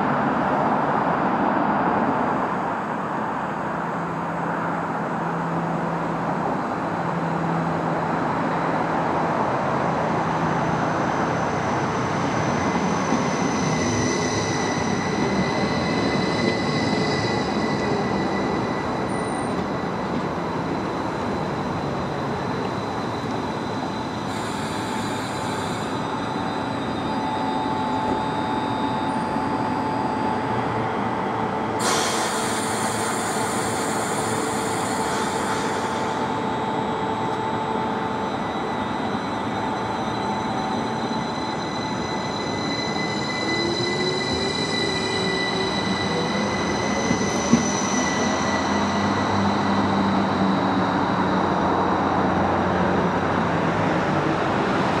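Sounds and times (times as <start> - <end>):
train motor whine: 12.7 - 52.2
loud air hiss: 24.3 - 26.0, 31.8 - 36.5
high squealing tones: 31.8 - 51.1.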